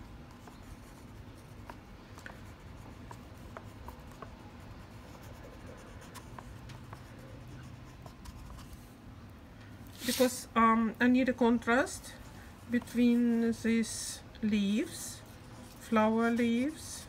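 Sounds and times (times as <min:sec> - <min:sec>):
crayon scratching on paper: 0:00.0 - 0:08.8.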